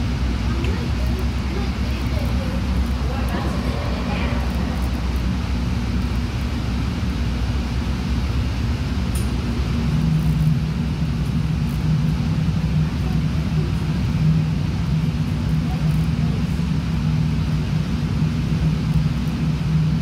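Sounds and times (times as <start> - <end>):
light rail car rumble: 0.0 - 20.0
humming tone: 1.1 - 7.6.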